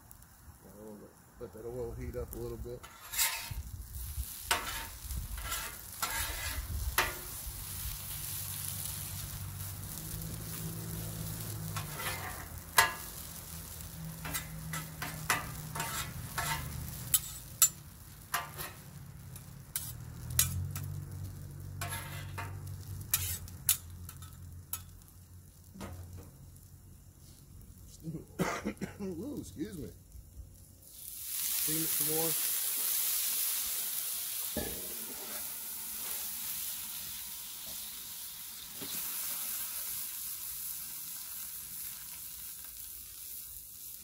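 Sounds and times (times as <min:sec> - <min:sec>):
potatoes sizzling on griddle: 0:00.0 - 0:44.0
metal spatulas scraping and clacking: 0:02.8 - 0:03.6, 0:04.5 - 0:07.3, 0:11.8 - 0:13.0, 0:14.2 - 0:18.8, 0:19.8 - 0:20.9, 0:21.8 - 0:24.9, 0:34.6 - 0:36.2.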